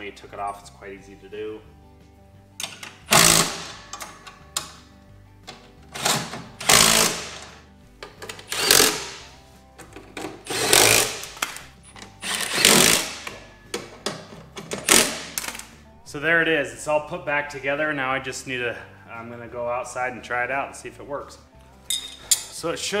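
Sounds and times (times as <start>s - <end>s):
impact driver bursts: 3.1s - 3.8s, 6.0s - 7.5s, 8.5s - 9.2s, 10.5s - 11.4s, 12.2s - 13.2s, 14.8s - 15.4s.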